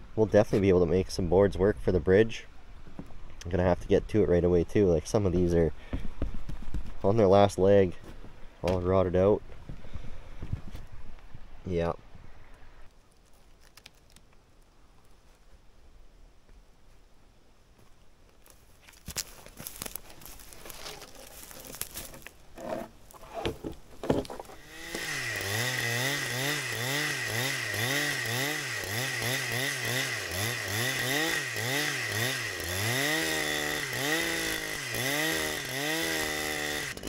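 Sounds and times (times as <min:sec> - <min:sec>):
chainsaw cutting log: 0:19.1 - 0:37.0.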